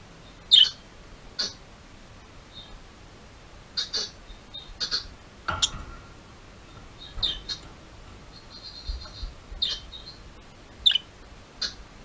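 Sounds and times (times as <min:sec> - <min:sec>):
budgerigar chirping: 0:00.5 - 0:00.8, 0:01.4 - 0:01.6, 0:03.8 - 0:05.8, 0:06.7 - 0:07.7, 0:08.3 - 0:10.2, 0:10.8 - 0:11.8.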